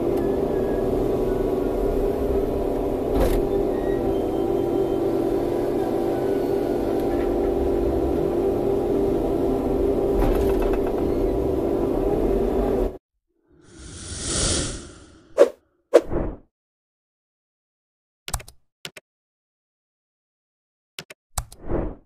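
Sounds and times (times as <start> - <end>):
excavator engine humming: 0.0 - 13.0
whoosh: 13.6 - 16.4.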